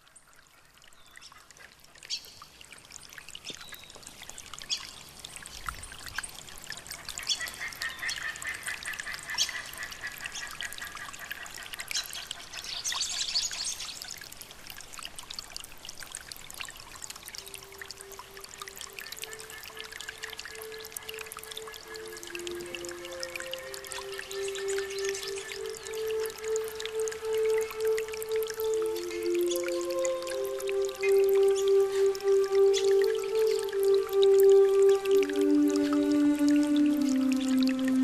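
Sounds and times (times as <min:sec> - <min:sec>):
water splashing and trickling: 0:00.0 - 0:38.0
soft sustained instrument tone: 0:17.1 - 0:38.0.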